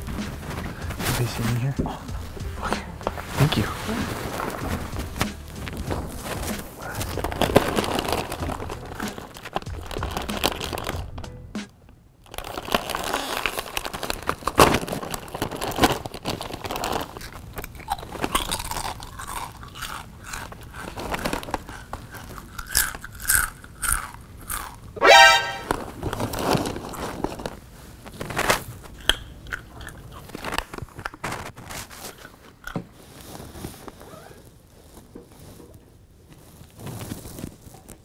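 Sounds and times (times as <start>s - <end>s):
crunching carrot bites: 0.0s - 11.2s, 12.3s - 25.7s, 28.2s - 32.9s
background music: 0.0s - 11.8s, 25.0s - 25.8s
short rising tone: 25.0s - 25.7s.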